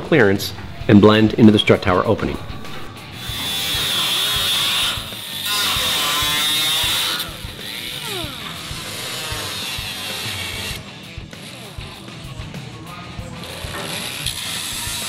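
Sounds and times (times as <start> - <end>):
cut-off grinder cutting sheet metal: 3.0 - 12.2, 13.4 - 15.0.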